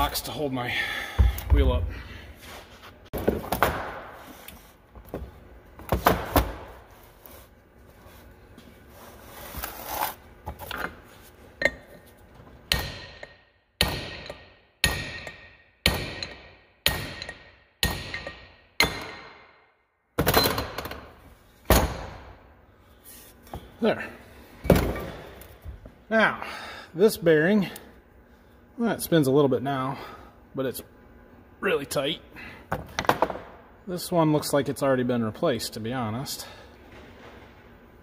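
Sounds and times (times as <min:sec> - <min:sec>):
hammer striking steel punch: 0:12.7 - 0:19.6.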